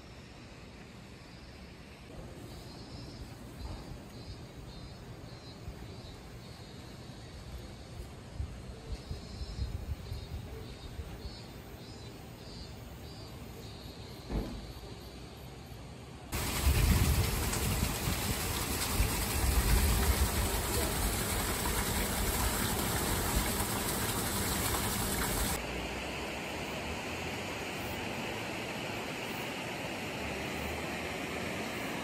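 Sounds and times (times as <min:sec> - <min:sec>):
water splashing on water wheel: 0:16.4 - 0:25.6
river running over stones: 0:16.4 - 0:26.2.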